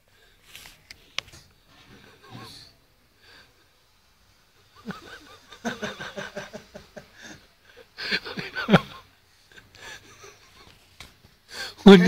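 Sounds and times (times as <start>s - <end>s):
people snickering and laughing: 4.6s - 10.8s.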